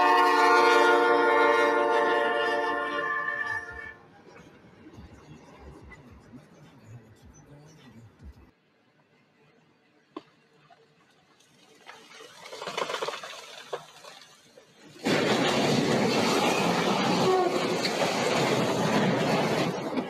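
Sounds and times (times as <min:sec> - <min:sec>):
freight train rolling past: 0:00.0 - 0:05.9, 0:14.9 - 0:20.0
landslide crashing into train: 0:14.8 - 0:20.0.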